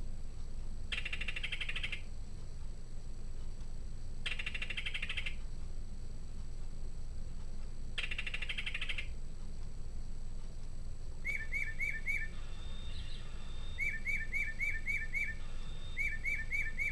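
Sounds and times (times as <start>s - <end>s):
low steady hum: 0.0s - 16.9s
recorded kingfisher rattle call: 0.9s - 2.1s, 4.2s - 5.4s, 8.0s - 9.2s, 11.2s - 16.9s.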